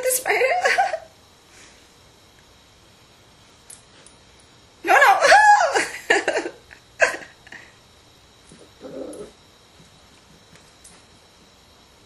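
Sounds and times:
dog whining and yipping: 8.8s - 9.4s.

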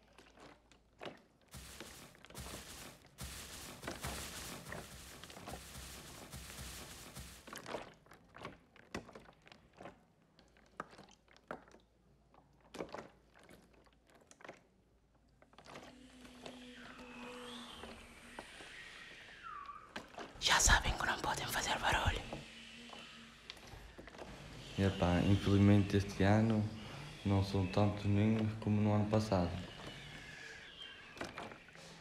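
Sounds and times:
sand scratching and crunching: 1.6s - 7.7s.

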